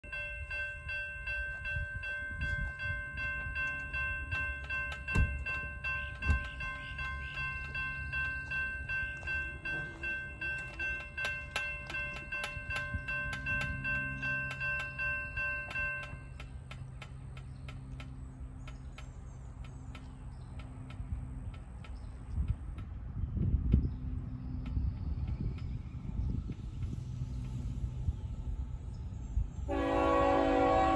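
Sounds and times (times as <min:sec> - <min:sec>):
railroad crossing bell ringing: 0:00.0 - 0:17.0, 0:29.6 - 0:30.9.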